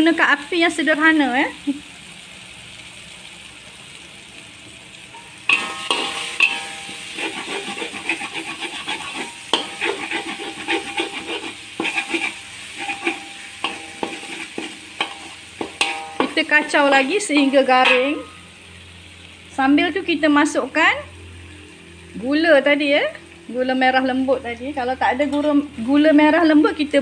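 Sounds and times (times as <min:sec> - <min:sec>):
paste sizzling in oil: 0:00.0 - 0:27.0
metal spatula scraping wok: 0:05.1 - 0:18.6.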